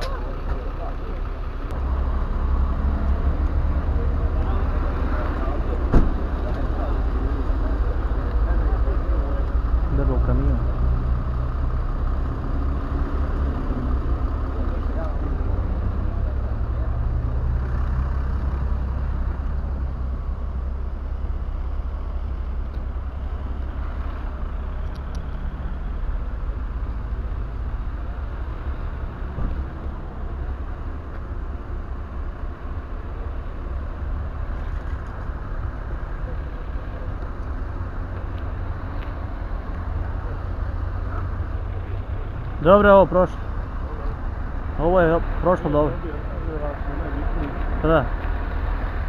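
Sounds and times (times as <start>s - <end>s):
truck diesel engine idling: 0.0s - 2.9s.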